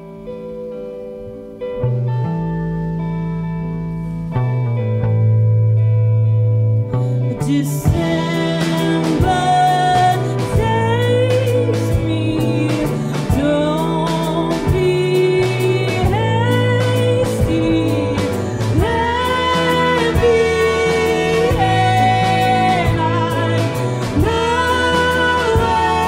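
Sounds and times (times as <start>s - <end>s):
rock band playing: 1.4s - 26.0s
woman singing: 7.3s - 26.0s.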